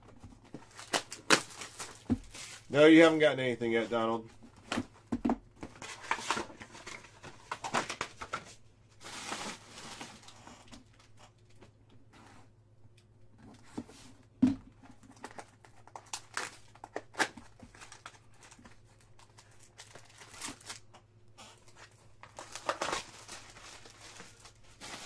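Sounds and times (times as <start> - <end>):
foil wrappers tearing and crinkling: 0.7 - 2.7, 15.3 - 25.0.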